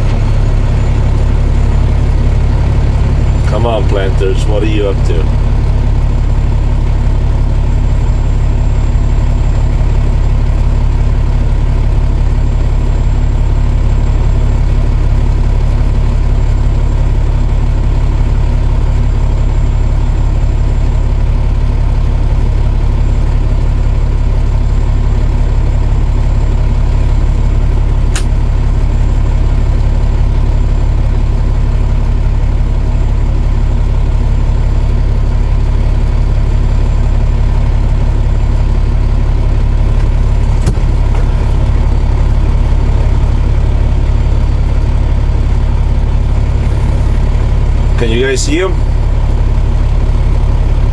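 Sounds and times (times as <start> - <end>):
diesel truck engine idling: 0.0 - 50.9
sharp click: 28.1 - 28.3.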